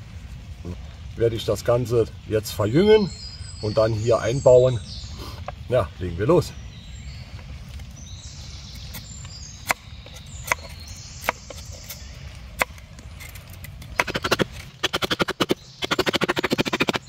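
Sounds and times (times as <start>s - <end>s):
hatchet shaving wood: 8.8s - 17.0s
hatchet chopping wood: 9.6s - 12.0s, 13.8s - 17.0s.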